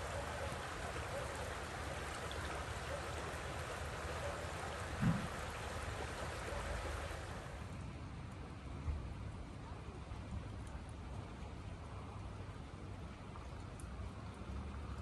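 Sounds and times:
river water babbling: 0:00.0 - 0:08.8
low thump: 0:05.0 - 0:05.4.

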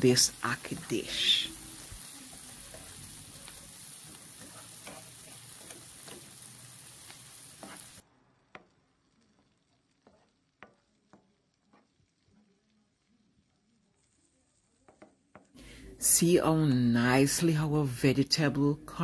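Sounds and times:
vegetables sizzling in oil: 0:00.0 - 0:12.2
plastic spatula scraping a pan: 0:07.6 - 0:08.0.

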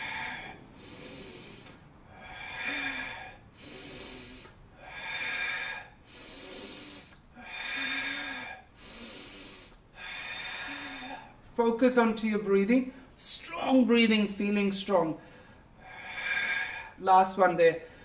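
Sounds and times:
man breathing deeply: 0:00.0 - 0:11.5, 0:15.2 - 0:17.0, 0:17.8 - 0:18.0.

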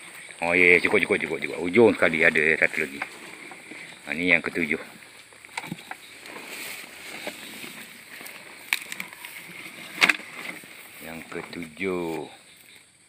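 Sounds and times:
footsteps in wet grass and mud: 0:00.0 - 0:12.8.

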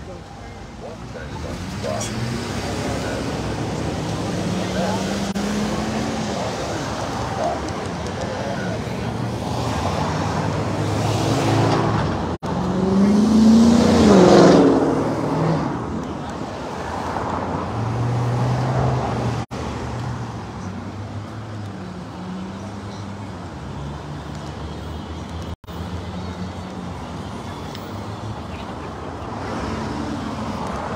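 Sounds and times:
road traffic: 0:00.0 - 0:30.9.

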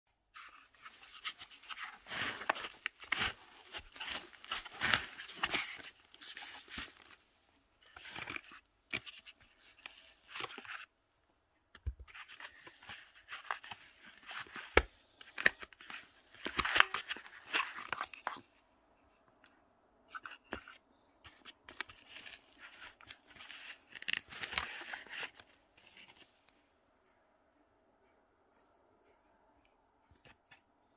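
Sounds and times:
cardboard and foam rustling: 0:00.3 - 0:07.2, 0:21.3 - 0:26.5.

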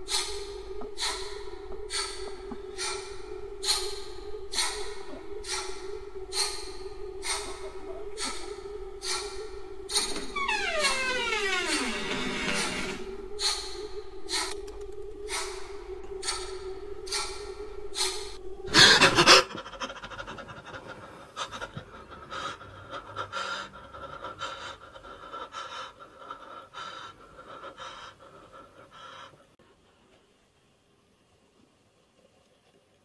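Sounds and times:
man panting heavily: 0:00.0 - 0:10.2, 0:13.2 - 0:29.6
low steady drone: 0:00.0 - 0:29.6.

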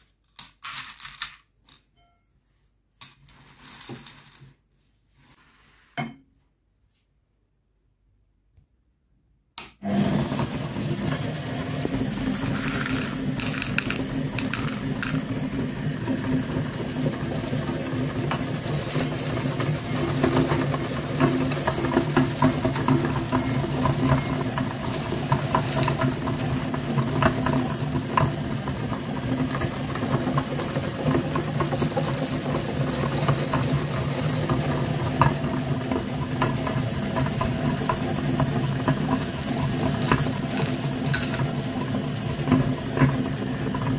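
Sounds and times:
meat grinder motor humming: 0:09.8 - 0:43.9.

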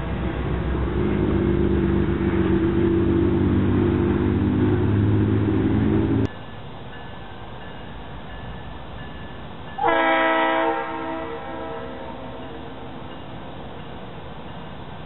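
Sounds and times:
locomotive air horn blast: 0:09.8 - 0:12.8.

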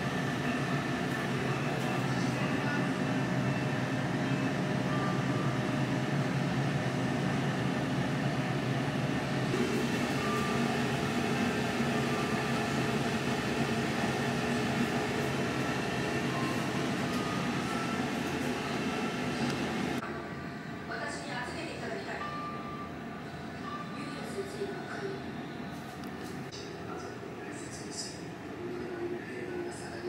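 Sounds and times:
vending machine cooling hum: 0:00.0 - 0:21.1.

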